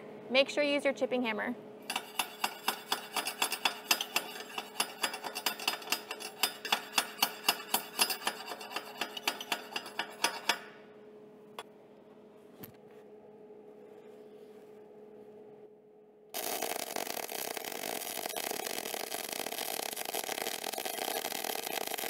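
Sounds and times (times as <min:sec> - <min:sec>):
low steady hum: 0:00.0 - 0:22.0
hammer tapping steel tubing: 0:01.9 - 0:10.7.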